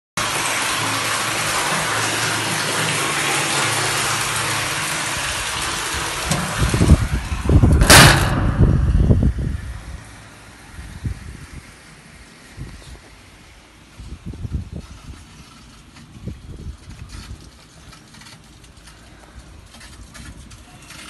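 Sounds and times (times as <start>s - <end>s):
water pouring into water: 0.2s - 7.6s
loud low rumbling: 4.0s - 13.4s.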